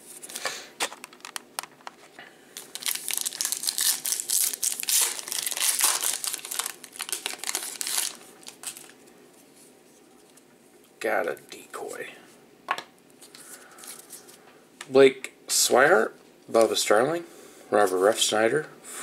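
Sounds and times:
foil wrapper crinkling and tearing: 2.6s - 9.0s.

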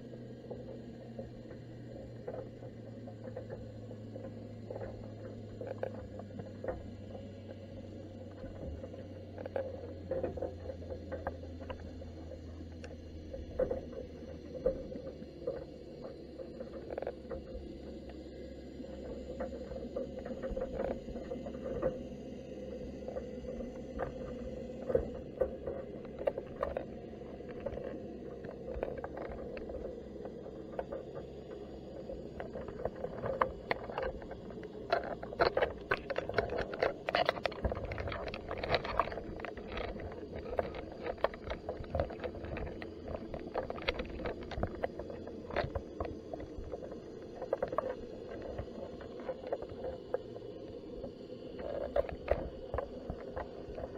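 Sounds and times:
low underwater rumble: 0.0s - 53.9s
sharp underwater clicks and taps: 23.2s - 50.8s.

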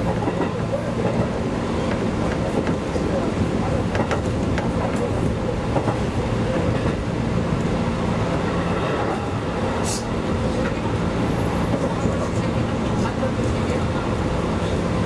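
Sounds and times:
train running noise and hum: 0.0s - 15.0s
brief hiss: 9.8s - 10.1s.

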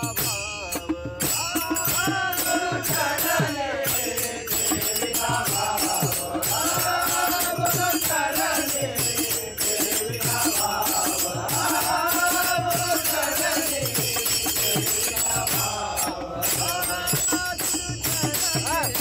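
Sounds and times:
jingling hand percussion: 0.0s - 19.0s
men singing in chorus: 0.0s - 19.0s.

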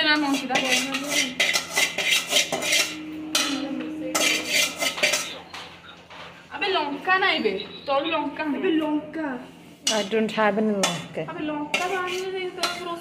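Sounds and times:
metal pots and utensils clattering: 0.0s - 6.3s, 9.8s - 13.0s.

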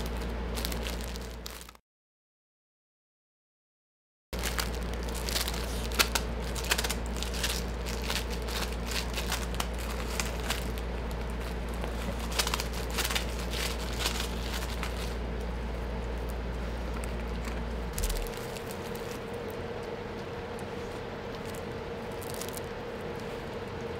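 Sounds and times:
plastic wrapper crinkling: 0.0s - 1.8s, 4.4s - 15.2s, 16.0s - 19.6s, 21.3s - 22.8s.

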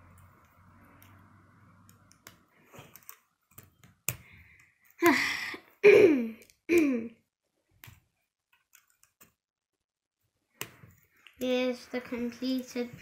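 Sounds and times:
plastic pieces clicking together: 1.8s - 5.0s, 7.8s - 9.4s.

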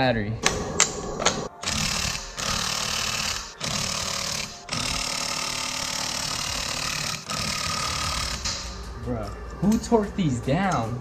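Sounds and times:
impact wrench hammering: 0.4s - 8.8s.

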